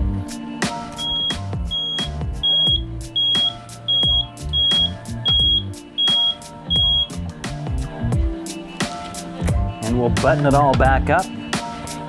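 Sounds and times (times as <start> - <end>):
high-pitched buzzer beeps: 1.0 - 7.2.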